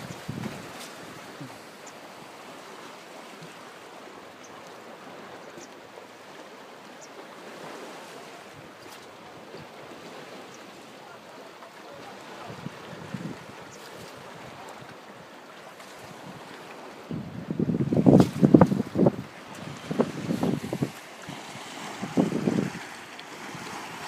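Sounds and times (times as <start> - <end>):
wind buffeting microphone: 0.0 - 1.7, 12.4 - 14.9, 16.0 - 24.0
waves lapping on shore: 0.0 - 24.0.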